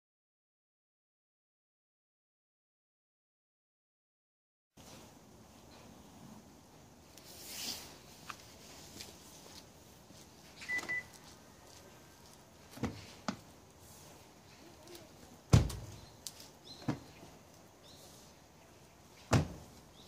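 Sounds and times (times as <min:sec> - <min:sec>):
short alarm beep: 0:10.7 - 0:11.1
car door handle thump: 0:19.3 - 0:19.6.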